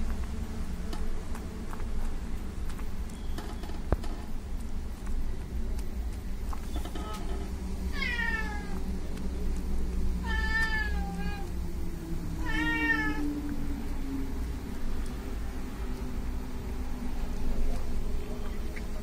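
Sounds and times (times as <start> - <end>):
steady low hum: 0.0 - 19.0
cat mewing: 7.9 - 8.8, 10.2 - 11.5, 12.4 - 13.2.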